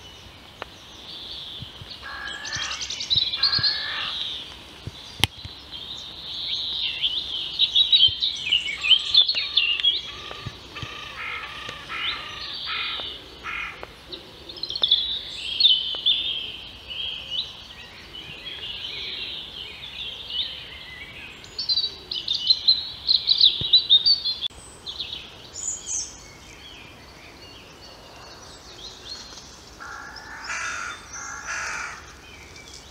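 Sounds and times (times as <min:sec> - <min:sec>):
songbirds singing: 0:00.0 - 0:32.9
lower-pitched bird call: 0:02.0 - 0:04.4, 0:08.2 - 0:13.8.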